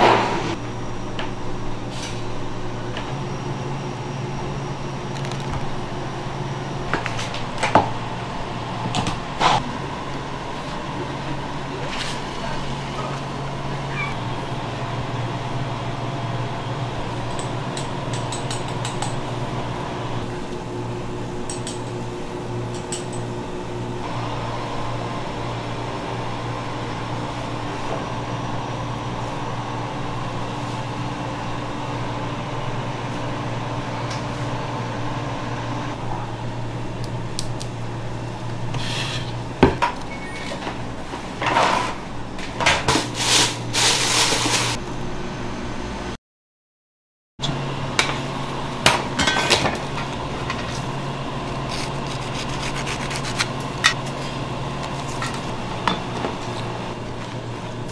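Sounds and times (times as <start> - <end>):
kitchen equipment hum: 0.0 - 46.2, 47.4 - 57.9
things scraping on bench: 40.3 - 42.0.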